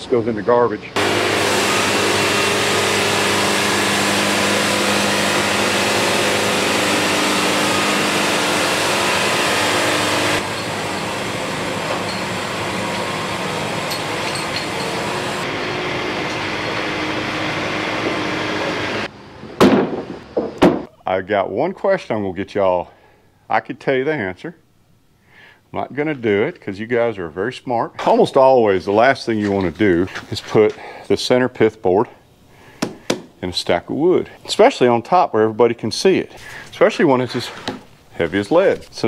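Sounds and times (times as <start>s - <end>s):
sawmill engine drone: 0.0s - 20.3s.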